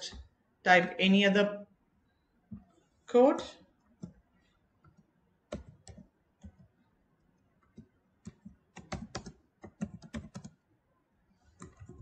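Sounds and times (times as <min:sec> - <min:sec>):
computer keyboard typing: 0:04.8 - 0:06.8, 0:07.6 - 0:10.6, 0:11.4 - 0:12.0.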